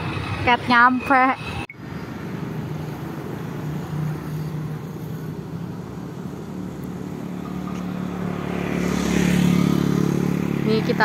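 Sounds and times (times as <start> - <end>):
road noise: 0.0 - 11.0
vehicle engine running: 6.0 - 11.0.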